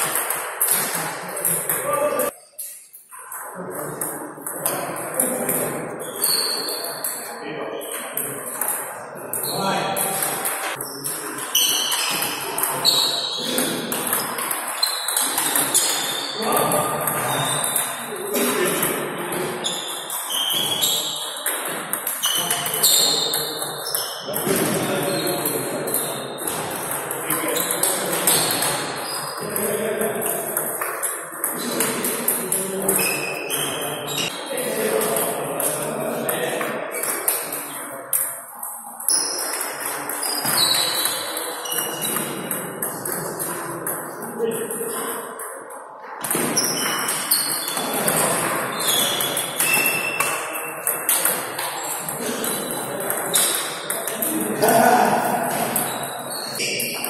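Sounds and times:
table tennis ball on paddles and table: 0:00.0 - 0:57.0
murmur of voices: 0:00.7 - 0:20.1, 0:22.2 - 0:57.0.

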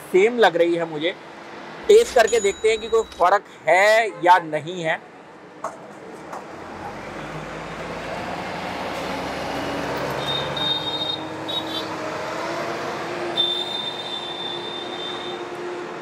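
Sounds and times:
motor vehicle running past: 0:06.5 - 0:10.6, 0:11.3 - 0:13.4.

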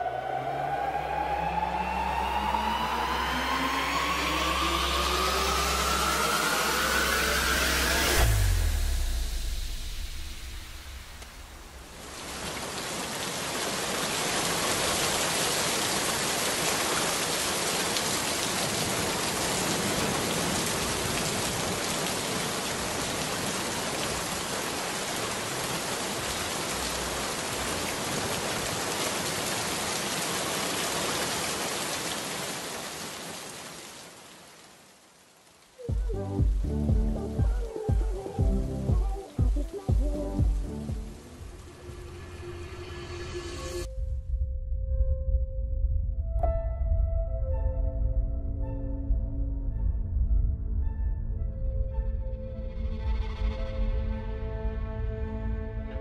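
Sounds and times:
heavy rain on pavement: 0:11.1 - 0:41.7.

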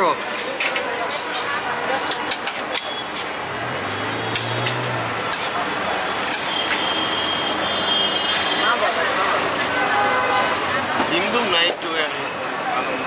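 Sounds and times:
street noise: 0:00.0 - 0:13.0
metal spoon scraping a tray: 0:04.3 - 0:06.8.

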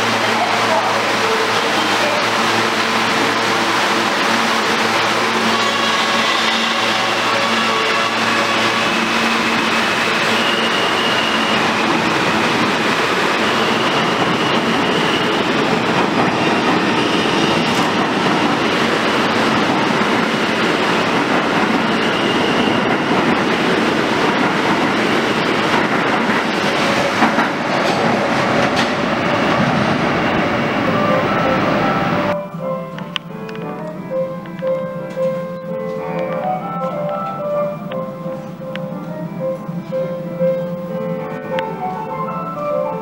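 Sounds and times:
subway train wheels rumbling: 0:00.0 - 0:43.0
high squeals: 0:01.3 - 0:23.8.

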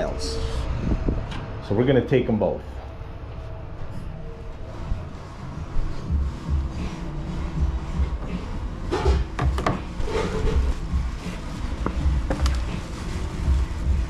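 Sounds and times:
clicks and knocks on wooden shelf: 0:09.1 - 0:09.8.

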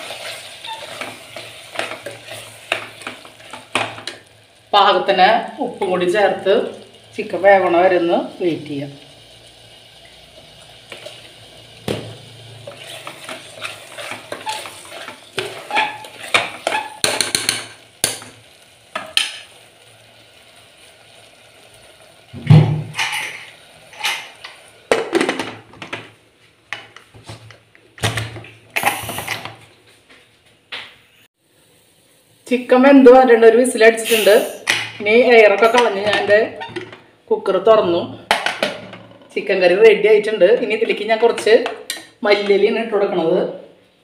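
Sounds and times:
spatula scraping a pot: 0:00.0 - 0:03.7, 0:12.6 - 0:17.6
faint sizzle: 0:00.0 - 0:25.0, 0:31.4 - 0:37.4
metal lid clanking: 0:22.5 - 0:25.6.

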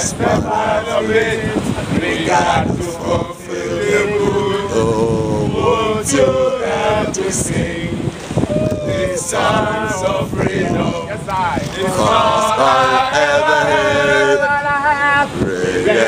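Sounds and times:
men singing and chanting: 0:00.0 - 0:16.0
wind buffeting microphone: 0:00.0 - 0:16.0.

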